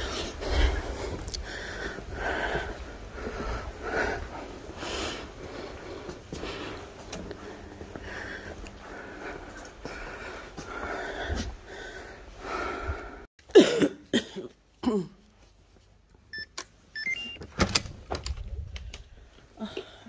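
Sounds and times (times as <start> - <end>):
keypad beeps: 16.3 - 17.4.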